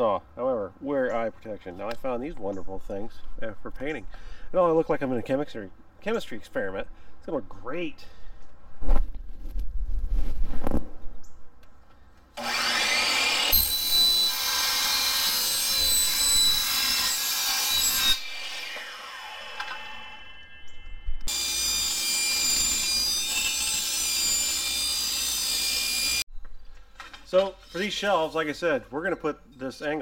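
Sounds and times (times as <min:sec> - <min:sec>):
miter saw cutting metal: 0:12.4 - 0:26.2
table saw cutting metal: 0:12.4 - 0:26.2.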